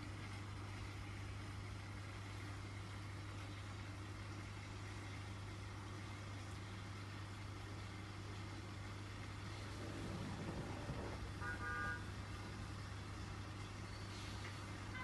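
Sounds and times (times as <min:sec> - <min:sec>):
constant hiss: 0:00.0 - 0:15.0
low hum: 0:09.4 - 0:12.9.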